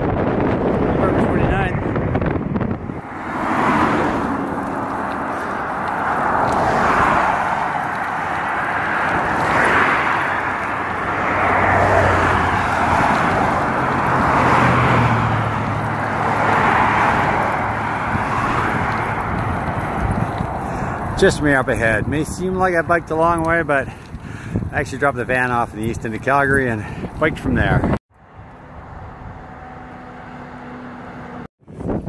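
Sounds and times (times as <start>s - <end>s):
highway traffic passing: 0.0s - 32.0s.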